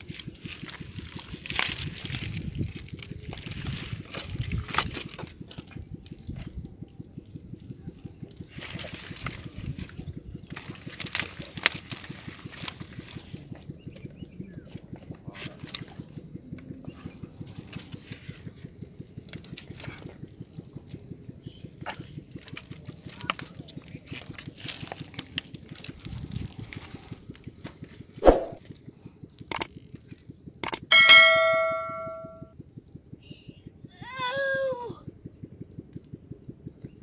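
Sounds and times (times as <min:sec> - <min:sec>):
mud and water squelching: 0:00.0 - 0:06.2, 0:08.2 - 0:13.9, 0:19.0 - 0:27.3
sharp knock: 0:28.2 - 0:28.6
small scattered clicks: 0:29.5 - 0:30.9.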